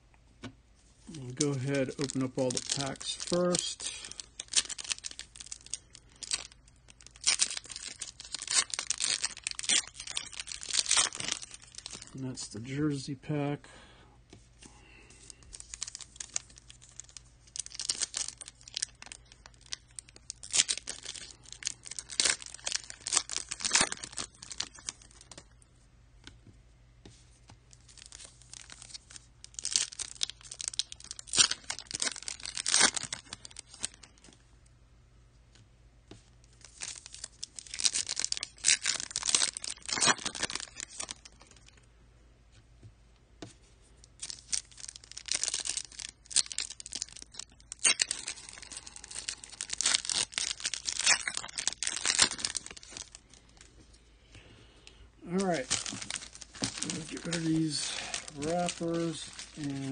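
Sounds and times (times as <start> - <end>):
handling of cards: 0.4 - 12.2, 14.3 - 25.5, 35.5 - 41.8, 44.2 - 54.5, 55.3 - 59.9
foil wrappers tearing and crinkling: 1.1 - 12.2, 14.8 - 25.6, 27.7 - 34.4, 36.6 - 41.8, 44.1 - 53.7, 55.3 - 59.9.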